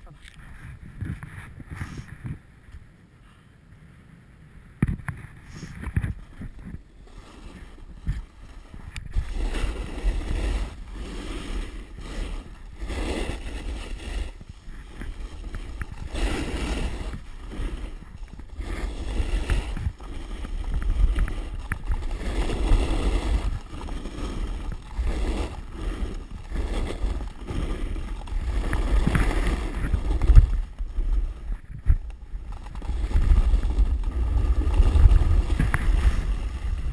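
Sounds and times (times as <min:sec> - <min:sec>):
wind buffeting microphone: 0:00.0 - 0:03.0, 0:03.8 - 0:36.9
snowboard edge scraping snow: 0:00.4 - 0:02.6, 0:04.9 - 0:36.9.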